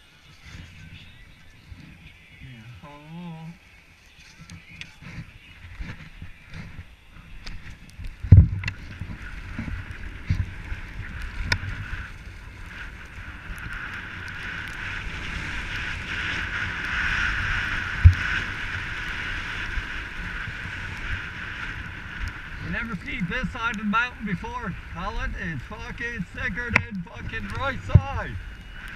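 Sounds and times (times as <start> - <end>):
wind buffeting microphone: 4.4 - 28.9
skis hissing on snow: 8.8 - 28.9.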